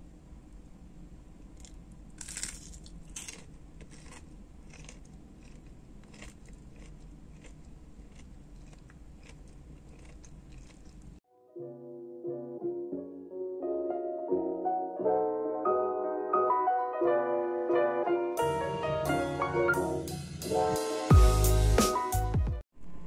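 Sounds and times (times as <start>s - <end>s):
crunchy food bitten into: 1.6s - 11.1s
chewing crunches: 1.6s - 11.2s.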